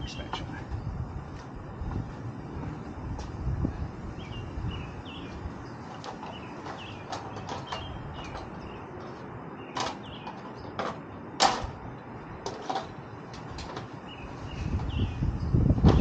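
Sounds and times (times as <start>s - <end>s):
birds chirping faintly: 0.0s - 1.1s, 3.7s - 11.2s, 13.0s - 15.9s.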